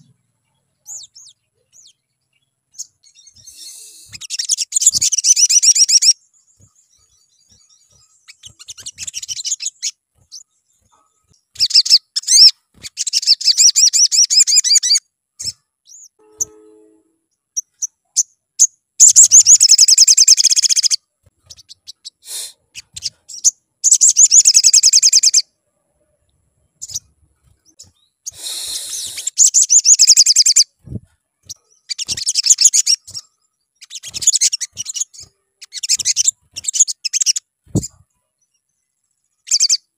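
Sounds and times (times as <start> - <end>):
bird high rapid trilling: 2.8 - 6.7, 7.5 - 10.4, 11.5 - 15.6, 19.0 - 25.4, 26.8 - 38.0.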